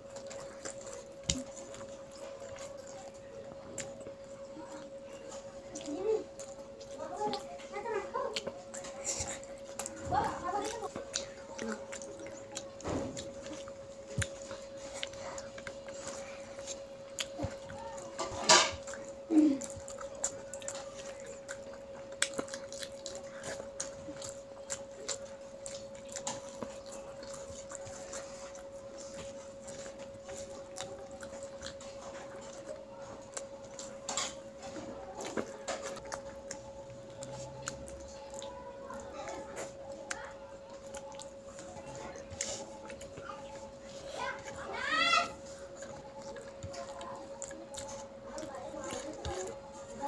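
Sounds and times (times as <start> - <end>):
child chewing: 0.0 - 50.0
steady electrical hum: 0.0 - 50.0.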